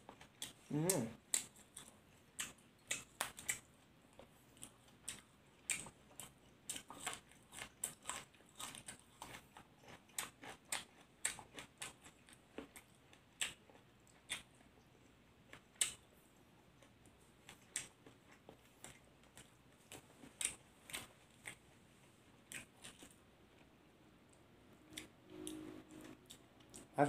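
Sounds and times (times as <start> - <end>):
mouth chewing sounds: 0.0 - 14.8, 22.4 - 23.7, 24.3 - 27.0.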